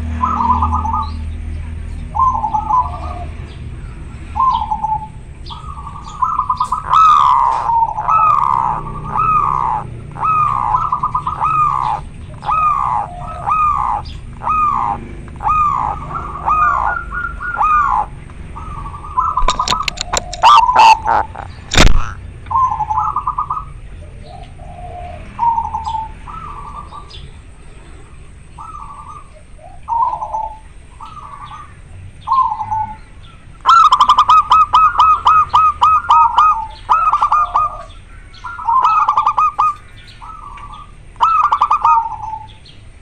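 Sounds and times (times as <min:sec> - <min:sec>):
dove cooing: 0:00.0 - 0:43.0
sharp clicks: 0:19.4 - 0:22.6.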